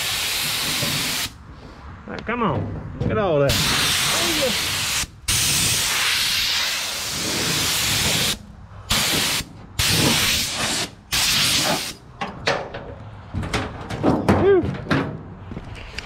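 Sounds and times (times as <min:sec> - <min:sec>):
compressed air blasts: 0:00.0 - 0:01.4, 0:03.5 - 0:12.0.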